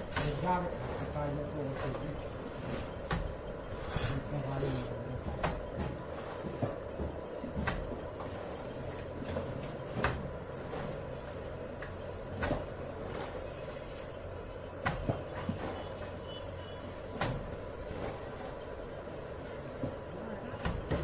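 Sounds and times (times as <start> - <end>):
steady background hum: 0.0 - 21.0
mortar slapping onto brick wall: 12.2 - 13.4, 20.6 - 21.0.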